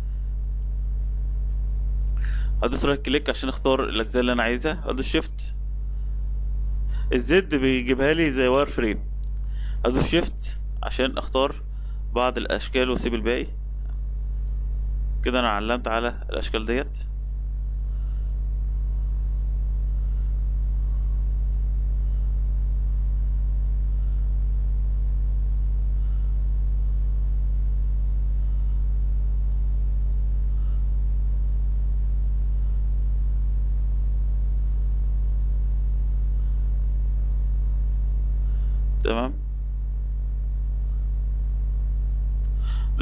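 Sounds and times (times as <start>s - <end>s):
low electrical hum: 0.0s - 43.0s
faint light clicks: 9.2s - 9.6s.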